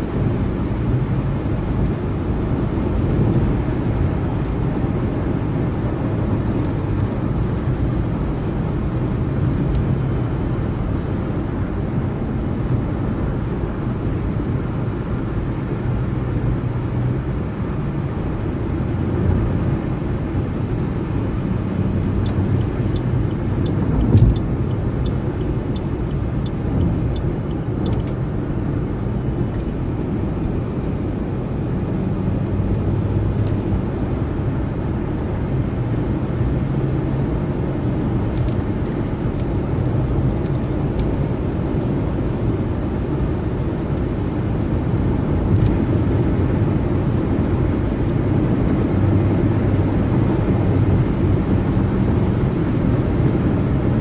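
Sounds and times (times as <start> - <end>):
car driving at freeway speed: 0.0 - 54.0
short thump: 24.0 - 24.4.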